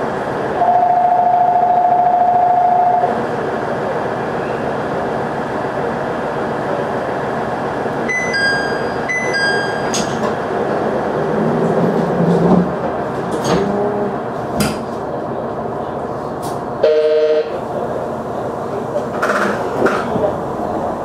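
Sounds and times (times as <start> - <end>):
diesel railcar engine idling: 12.7 - 21.0.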